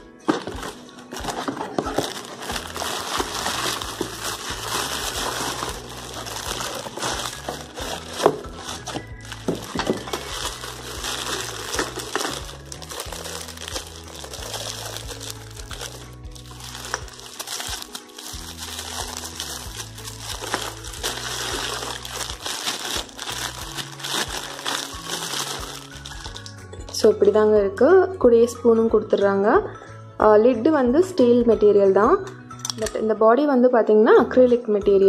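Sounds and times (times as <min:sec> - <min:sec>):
background music with bass line: 0:00.0 - 0:33.2
plastic wrapping crinkling: 0:00.3 - 0:26.7.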